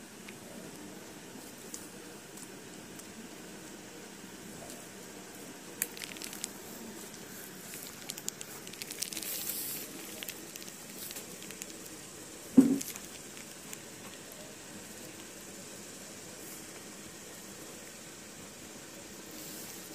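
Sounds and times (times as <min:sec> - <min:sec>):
paper crinkling: 0:05.8 - 0:12.0, 0:12.6 - 0:14.4
loud thump: 0:12.6 - 0:12.8.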